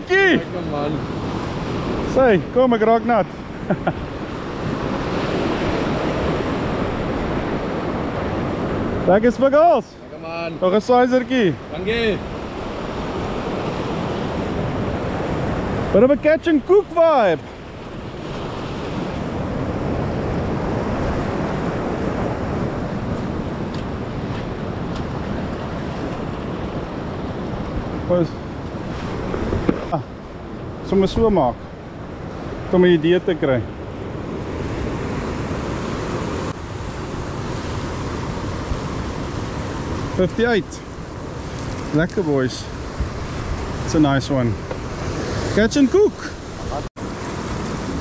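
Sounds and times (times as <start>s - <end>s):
surf on rocky shore: 0.0s - 48.0s
wind on microphone: 17.5s - 32.7s, 33.7s - 48.0s.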